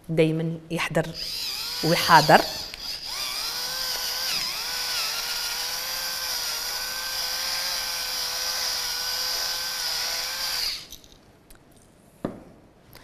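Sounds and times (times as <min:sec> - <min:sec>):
electric pepper mill grinding: 0:01.2 - 0:11.1.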